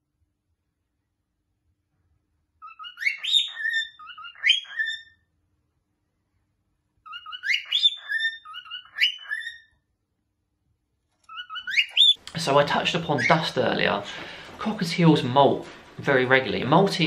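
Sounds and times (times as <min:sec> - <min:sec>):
cockatiel whistling song: 0:02.6 - 0:05.2, 0:07.0 - 0:09.8, 0:11.3 - 0:12.2.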